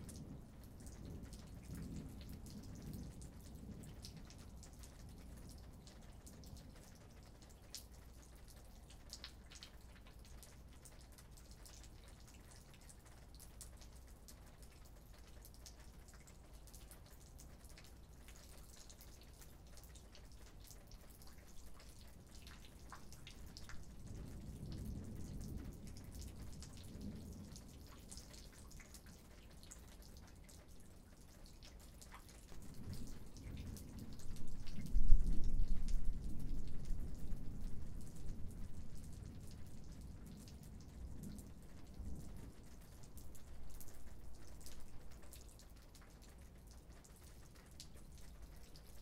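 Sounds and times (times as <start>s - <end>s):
light rain: 0.0s - 49.0s
raindrops ticking: 0.0s - 49.0s
distant thunder rumbling: 22.7s - 28.6s.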